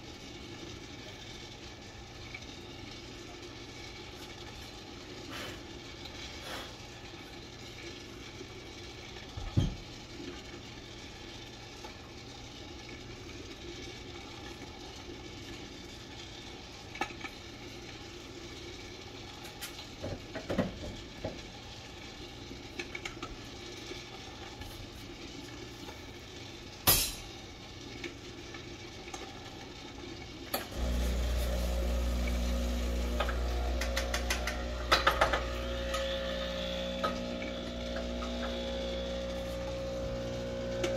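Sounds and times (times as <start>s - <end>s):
espresso machine pump humming: 27.4s - 40.9s.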